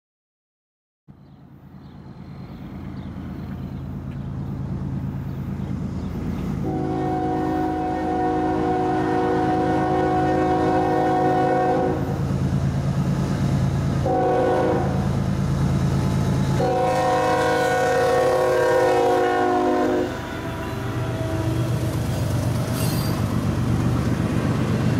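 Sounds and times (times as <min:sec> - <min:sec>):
diesel locomotive engine rumble: 0:01.1 - 0:24.9
train chime horn: 0:06.6 - 0:12.1, 0:14.0 - 0:15.0, 0:16.5 - 0:21.8.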